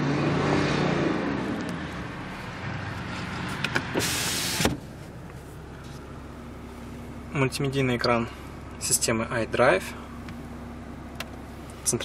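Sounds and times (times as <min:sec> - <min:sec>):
diesel engine running: 0:00.9 - 0:12.0
loud hiss: 0:04.0 - 0:04.8.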